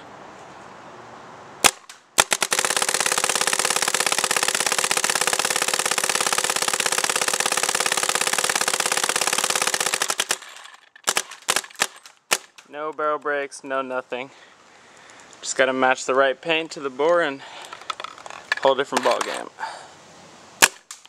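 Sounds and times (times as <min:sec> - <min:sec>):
paintball marker firing: 0:01.6 - 0:12.7, 0:20.6 - 0:21.0.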